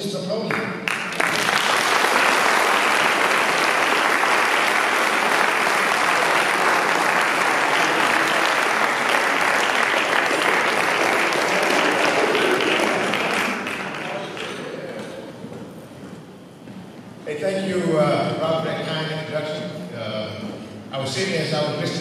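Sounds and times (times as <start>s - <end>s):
audience applauding: 0.5s - 15.2s.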